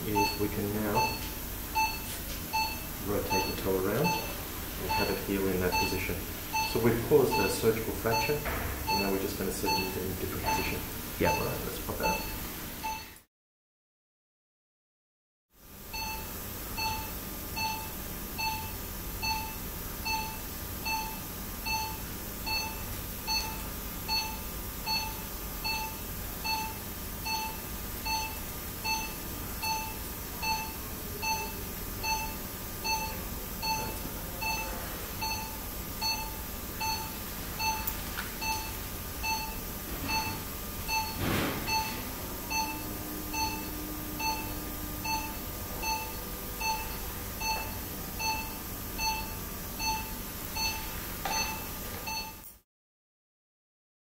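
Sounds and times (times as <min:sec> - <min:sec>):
patient monitor beeping: 0:00.0 - 0:13.3, 0:15.9 - 0:52.5.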